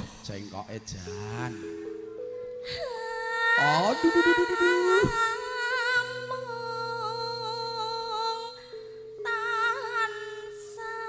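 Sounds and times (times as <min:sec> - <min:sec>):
backing note and low drone: 0:03.9 - 0:05.3.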